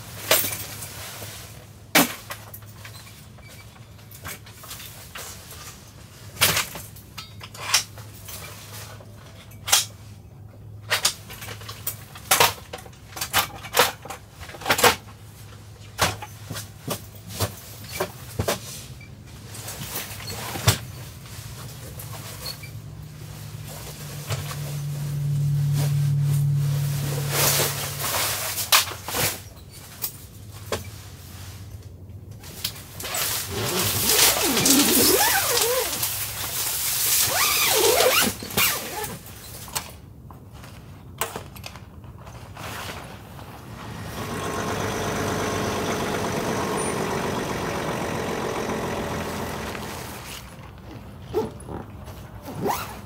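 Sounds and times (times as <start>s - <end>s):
knocks of gear being packed: 33.0s - 40.0s, 48.5s - 53.0s.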